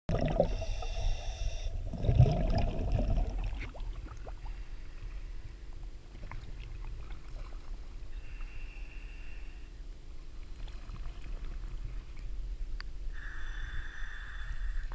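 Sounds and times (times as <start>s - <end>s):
water sloshing and lapping: 1.8s - 8.6s, 10.2s - 12.7s.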